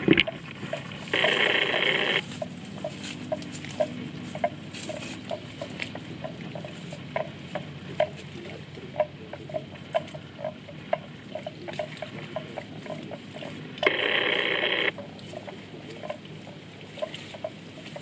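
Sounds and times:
grass being torn and chewed: 0:01.0 - 0:08.6.

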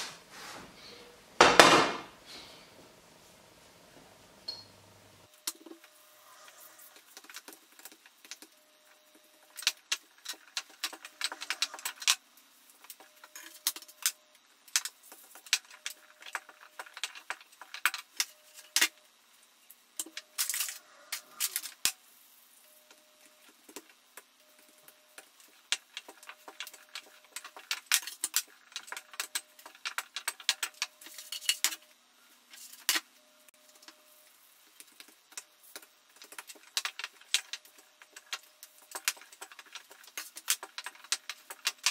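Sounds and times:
rolling pin on worktop: 0:01.4 - 0:02.1.

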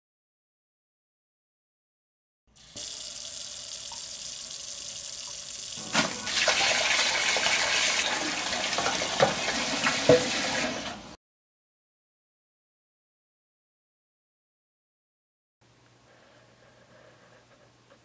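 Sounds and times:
tap water running into steel sink: 0:02.6 - 0:11.0
dishes knocking in sink: 0:08.7 - 0:10.6.

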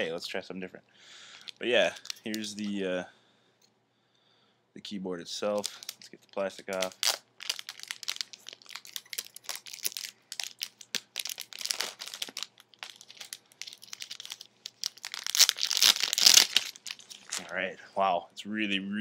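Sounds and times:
plastic sleeve crinkling: 0:01.4 - 0:02.8, 0:05.5 - 0:17.7.

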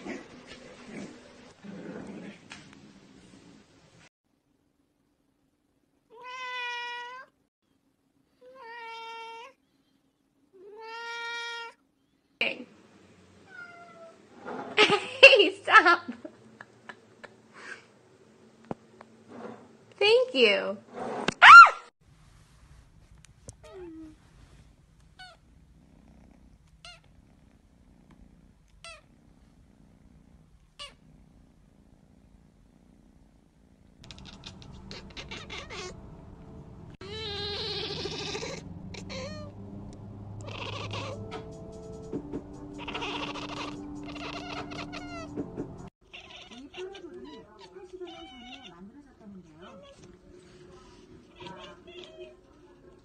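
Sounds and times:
cat meowing: 0:06.1 - 0:07.3, 0:34.0 - 0:36.0, 0:37.0 - 0:39.5, 0:40.4 - 0:41.5, 0:42.8 - 0:45.3, 0:46.1 - 0:48.9, 0:51.2 - 0:52.5
kitten purring: 0:23.4 - 0:36.3
kitten high-pitched squeaks: 0:34.0 - 0:36.0, 0:37.0 - 0:39.5, 0:40.4 - 0:41.5, 0:42.8 - 0:45.3.

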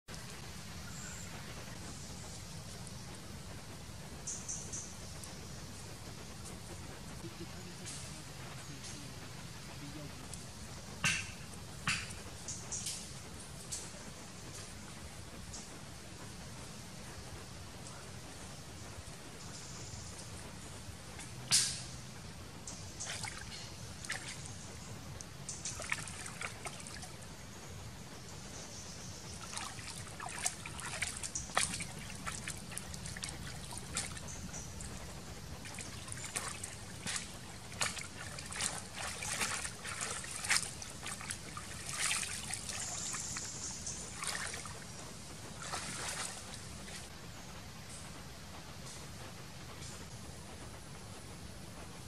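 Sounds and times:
water splashing and trickling: 0:20.2 - 0:47.2.

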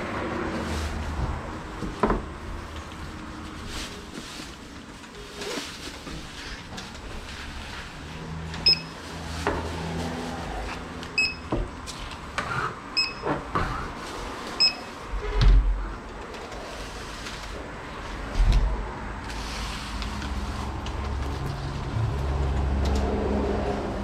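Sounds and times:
items knocking and rustling: 0:00.8 - 0:07.6
electronic checkout beeps: 0:08.7 - 0:09.0, 0:11.2 - 0:11.5, 0:13.0 - 0:13.3, 0:14.6 - 0:14.9.

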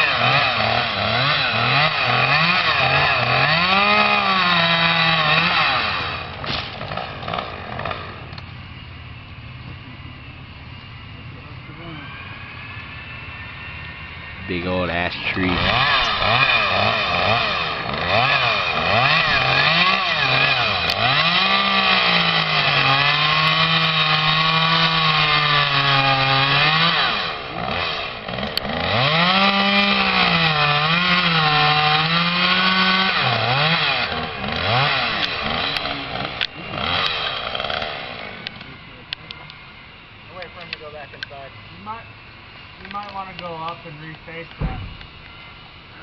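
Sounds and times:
chainsaw revving: 0:00.0 - 0:08.4, 0:12.4 - 0:38.9.

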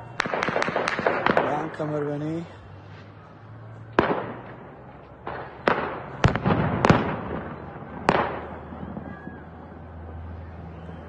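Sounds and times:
gunshots echoing: 0:00.2 - 0:02.5, 0:03.9 - 0:09.2.

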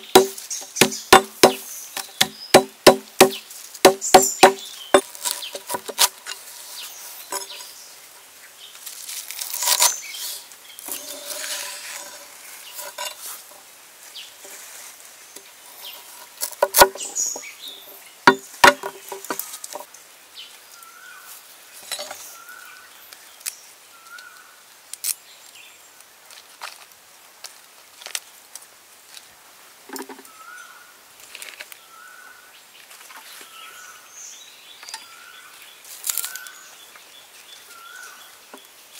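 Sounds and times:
bird chirping: 0:00.0 - 0:05.9, 0:06.6 - 0:08.8, 0:16.8 - 0:24.5
cleaver chopping on wooden board: 0:00.0 - 0:06.1, 0:16.5 - 0:17.1, 0:18.3 - 0:19.4.

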